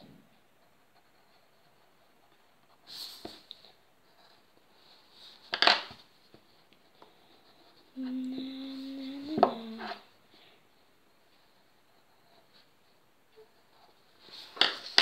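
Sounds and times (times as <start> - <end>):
child humming: 7.9 - 10.1.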